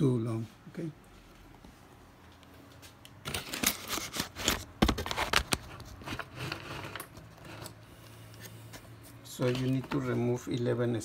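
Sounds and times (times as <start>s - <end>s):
laptop and tools clicking and tapping: 2.3s - 10.7s.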